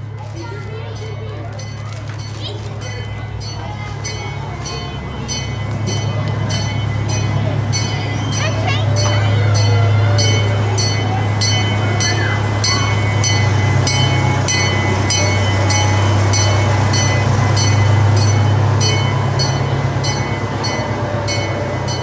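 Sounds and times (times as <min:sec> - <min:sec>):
miniature train drone: 0:00.0 - 0:22.0.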